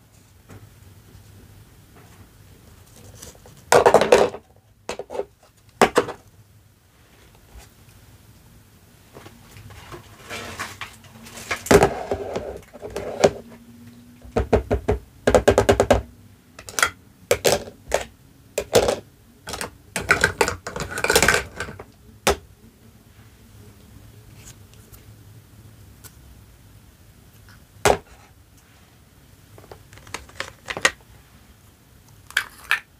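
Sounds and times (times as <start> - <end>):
plastic toy dishes clattering: 3.7 - 6.2, 16.6 - 22.4, 29.6 - 31.0, 32.2 - 32.9.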